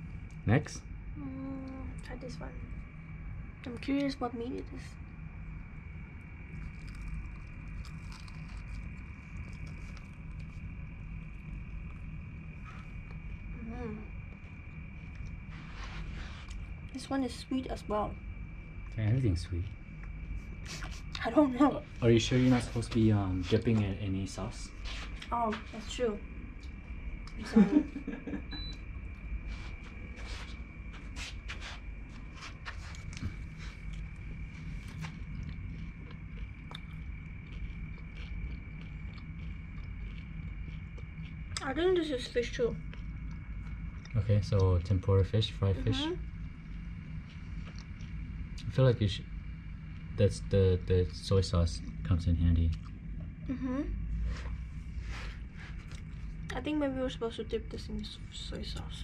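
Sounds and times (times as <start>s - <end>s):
air conditioner humming: 0.0s - 59.0s
eating from plastic containers: 32.4s - 41.6s.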